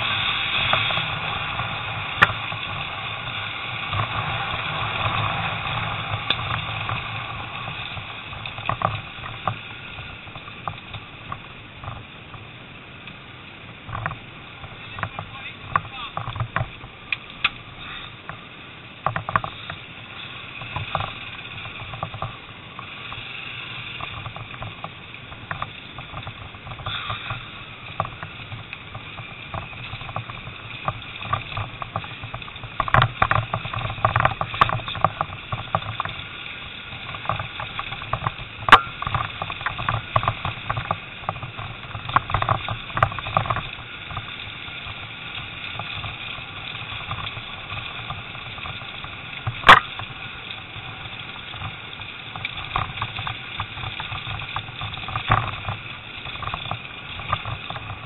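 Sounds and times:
motorcycle engine running: 0:17.6 - 0:58.0.

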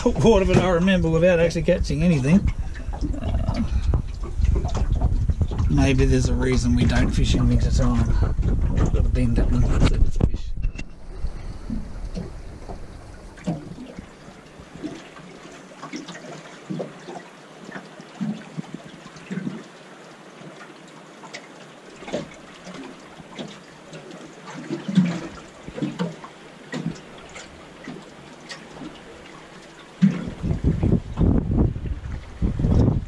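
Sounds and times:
wind rumbling on microphone: 0:00.0 - 0:15.4, 0:30.0 - 0:33.0
waves slapping a metal hull: 0:00.0 - 0:33.0
wash of water: 0:11.0 - 0:33.0.

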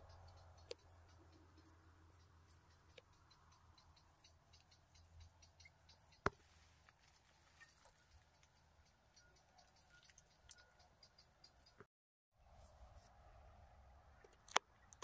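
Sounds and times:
faint ticks: 0:00.0 - 0:11.9.

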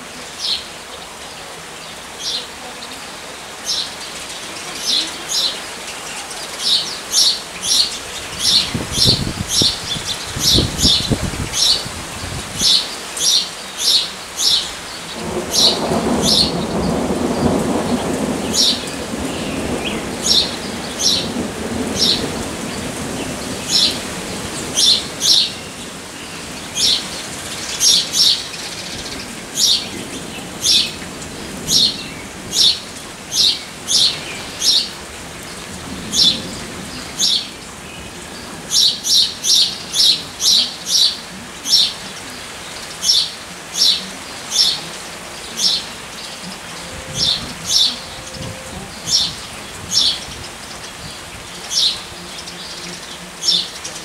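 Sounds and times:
steady rain: 0:00.0 - 0:54.0
thunder rumble: 0:08.0 - 0:12.8, 0:14.8 - 0:41.4, 0:46.8 - 0:51.3.

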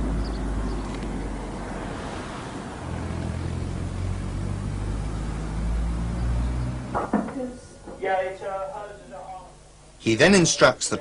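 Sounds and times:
vehicle rumbling hum: 0:00.0 - 0:07.5.

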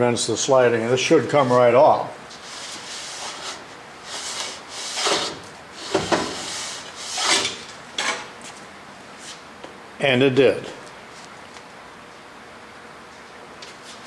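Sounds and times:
metal lathe saddle scraping: 0:02.6 - 0:08.3.

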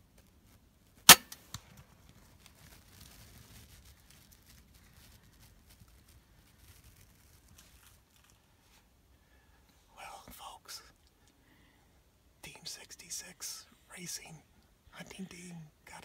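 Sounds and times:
crossbow firing snap: 0:01.1 - 0:01.6.

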